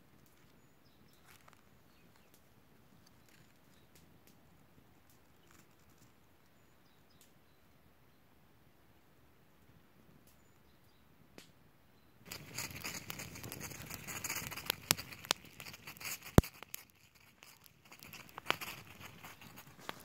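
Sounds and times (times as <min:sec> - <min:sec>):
aluminium foil crinkling and tearing: 0:12.3 - 0:20.0.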